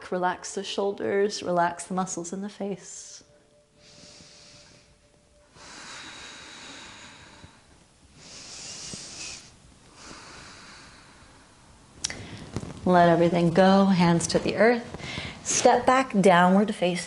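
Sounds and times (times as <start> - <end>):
woman breathing through nose: 3.7 - 12.6, 15.0 - 15.4.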